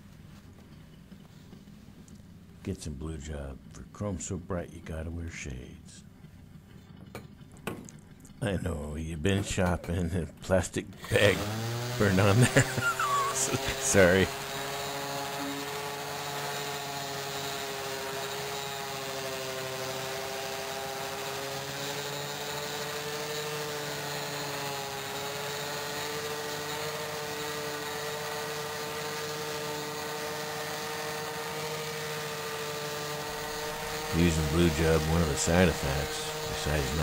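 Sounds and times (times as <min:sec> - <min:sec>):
orbital sander whine: 0:11.0 - 0:37.0.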